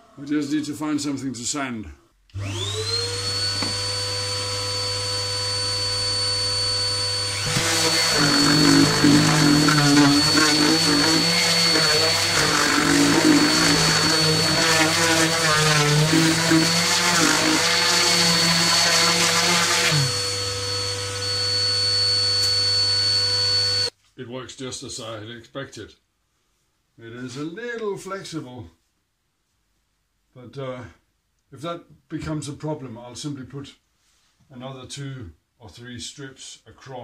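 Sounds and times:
dust extractor running: 0:02.4 - 0:21.6
orbital sander on wood: 0:02.4 - 0:23.9.

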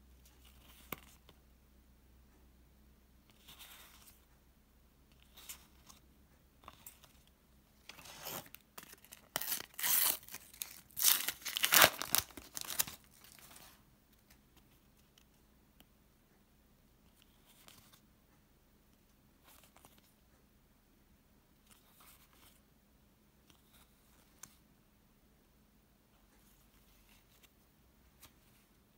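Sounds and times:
wrapper tearing and crinkling: 0:08.1 - 0:13.4.

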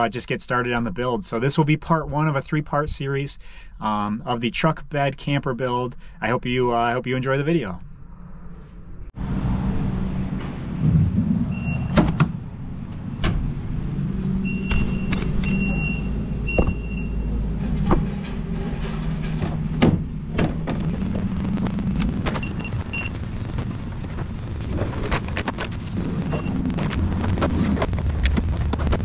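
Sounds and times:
steady low hum: 0:07.8 - 0:29.0
knocks and clunks of objects: 0:16.5 - 0:16.9, 0:17.5 - 0:20.9.

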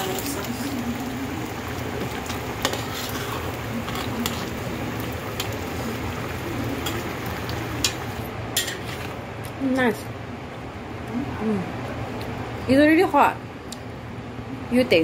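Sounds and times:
sauce bubbling in a wok: 0:00.0 - 0:09.2.

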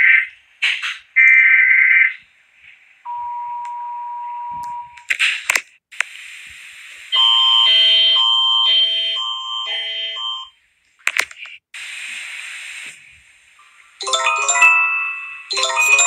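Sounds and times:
bell-like alert chime: 0:14.0 - 0:16.0
emergency alert tone: 0:14.0 - 0:16.0.

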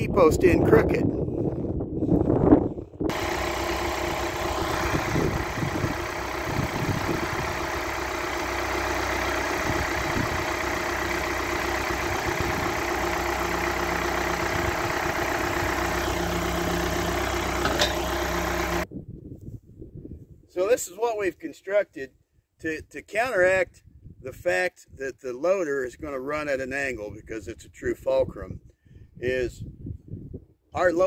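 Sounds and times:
tractor engine running: 0:03.1 - 0:18.9.

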